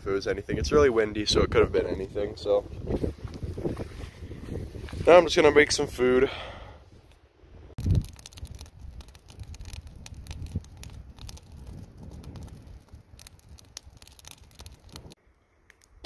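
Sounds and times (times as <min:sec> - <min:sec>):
wind rumbling on microphone: 0:00.0 - 0:06.0, 0:06.9 - 0:15.2
campfire crackling and popping: 0:07.8 - 0:16.0.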